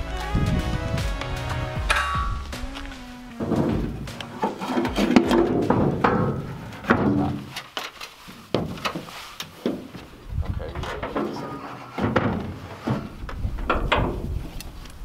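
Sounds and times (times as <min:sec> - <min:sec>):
metal tray knocking and scraping: 0:03.4 - 0:07.5.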